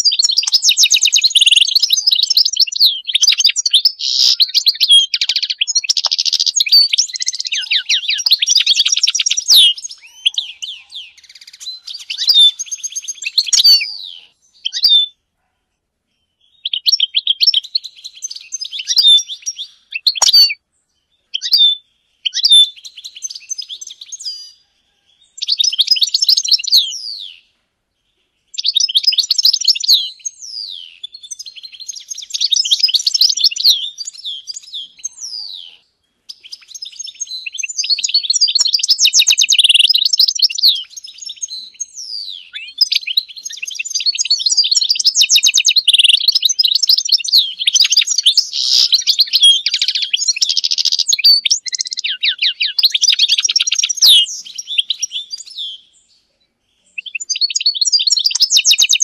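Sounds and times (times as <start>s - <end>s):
goldfinch twittering: 0.0s - 14.0s, 36.5s - 41.9s, 42.5s - 55.6s.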